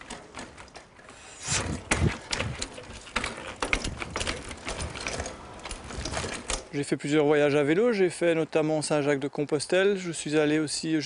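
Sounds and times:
bike tyres thumping on wood: 0.0s - 6.7s
bike knocking and rattling on wood: 0.0s - 7.8s.

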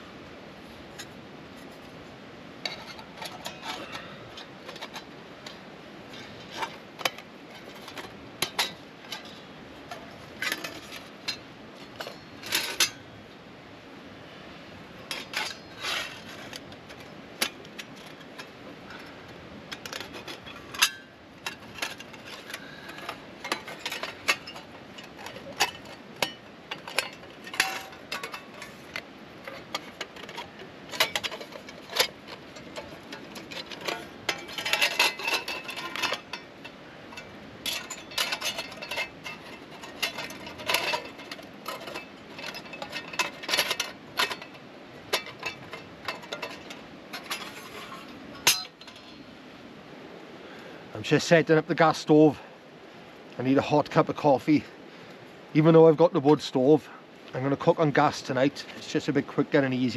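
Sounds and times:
metal panels clinking and scraping: 0.8s - 13.3s, 14.8s - 49.6s.

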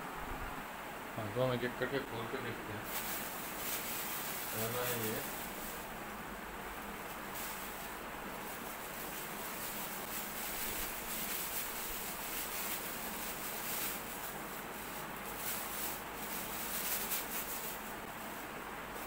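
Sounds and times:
steady background hiss: 0.0s - 19.0s
packaging rustling and crinkling: 2.8s - 6.0s, 7.0s - 19.0s.

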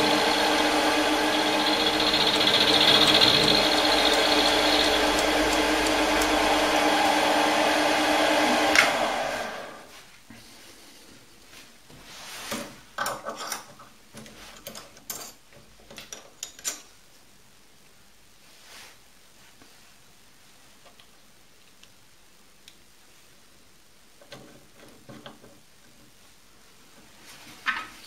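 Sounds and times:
lathe milling: 0.0s - 9.8s.

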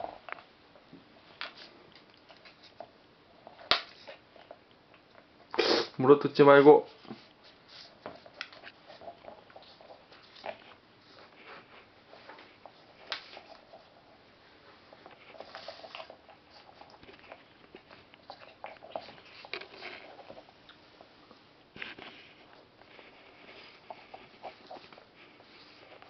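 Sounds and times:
faint clicks and rustles: 0.0s - 5.5s, 6.5s - 26.0s
cat chewing rubber: 7.2s - 26.0s.

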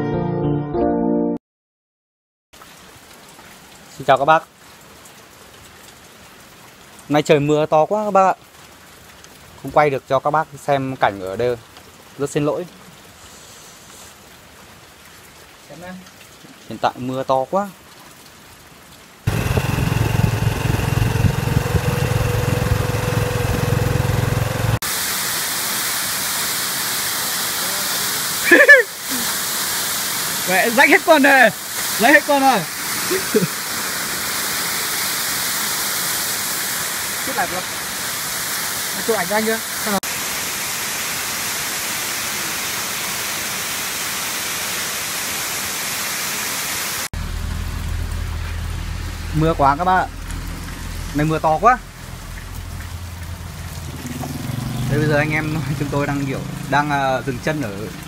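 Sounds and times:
waterfall pouring down rock: 2.6s - 18.2s, 19.2s - 58.0s
heavy rain hiss: 6.1s - 17.8s, 19.2s - 58.0s
motorcycle engine running: 19.3s - 24.8s, 52.2s - 56.8s
tyre and road noise: 19.3s - 24.8s, 47.2s - 58.0s.

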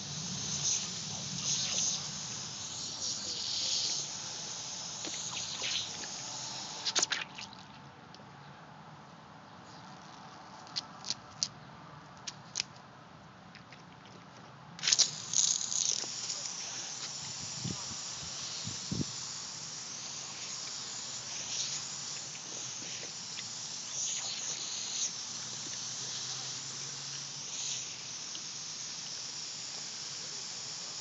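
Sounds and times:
sprinkler spraying water: 0.0s - 7.5s, 14.8s - 31.0s.

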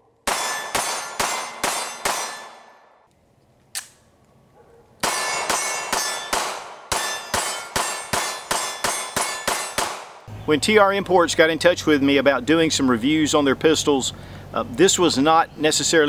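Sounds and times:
pistol shots: 0.2s - 3.0s, 5.0s - 10.3s
steel targets ringing: 0.3s - 2.9s, 5.0s - 10.0s.

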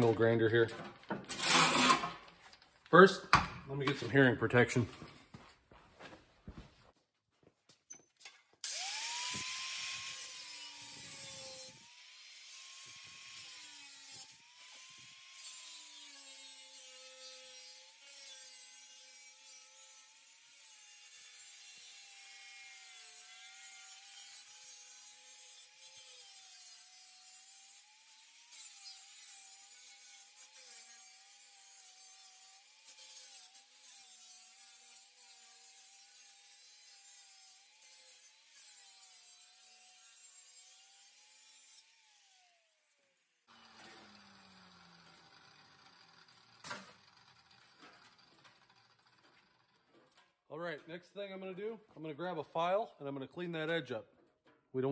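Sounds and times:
grinder cutting metal: 1.3s - 2.2s, 8.6s - 50.2s
angle grinder whine: 8.6s - 17.0s, 43.5s - 49.6s.

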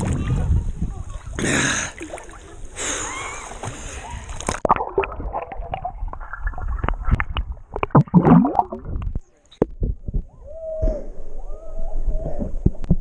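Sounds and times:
water sloshing and splashing: 2.0s - 9.3s
underwater gurgling: 4.4s - 10.2s.

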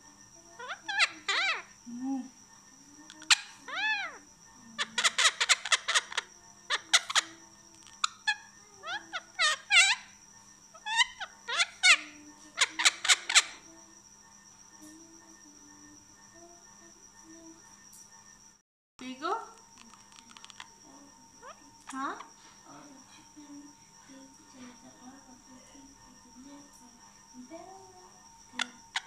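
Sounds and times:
steady high-pitched whine: 0.0s - 29.0s
parrot clicky calls: 4.8s - 10.1s, 19.6s - 20.7s.

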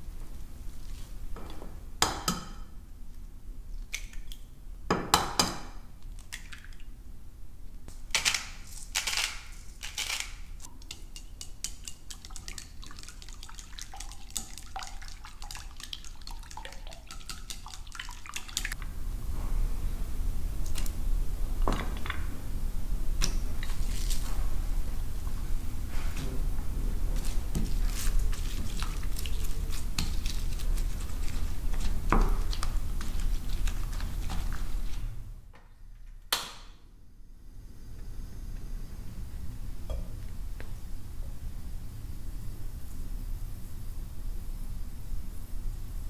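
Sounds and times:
water sounds: 12.0s - 18.8s.

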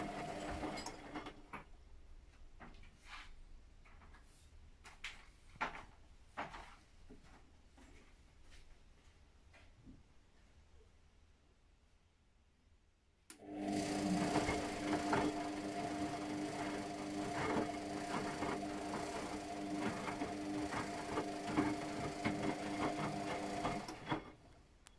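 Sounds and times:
washing machine drum humming: 0.0s - 1.2s, 13.4s - 24.5s.

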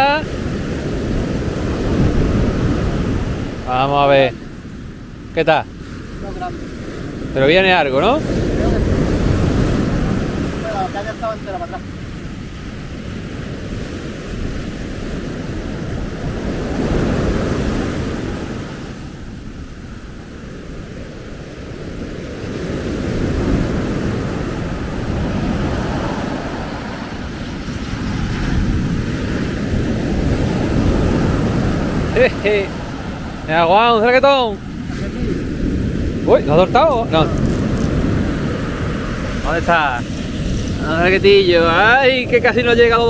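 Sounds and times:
surf washing up beach: 0.0s - 43.0s
wind rushing over microphone: 0.0s - 43.0s.

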